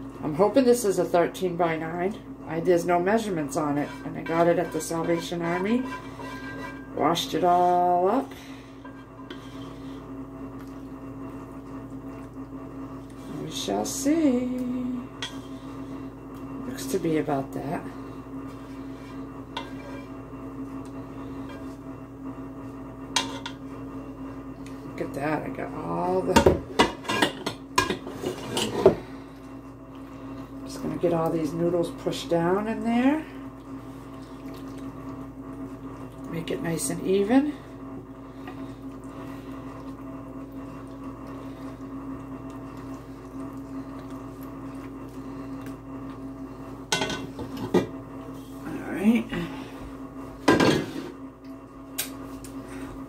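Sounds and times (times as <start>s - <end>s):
steady low hum: 0.0s - 53.0s
spatula scraping metal pot: 3.2s - 8.2s, 8.8s - 10.0s, 18.6s - 20.2s, 23.2s - 23.6s, 26.8s - 29.0s.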